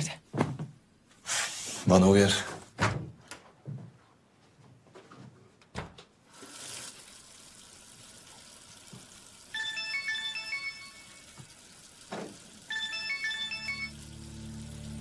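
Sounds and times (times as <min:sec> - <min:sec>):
phone ringtone: 0:09.5 - 0:11.5, 0:12.6 - 0:14.2.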